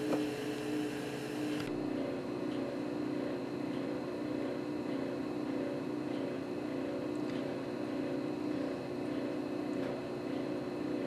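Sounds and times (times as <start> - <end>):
air compressor running: 0.0 - 2.0.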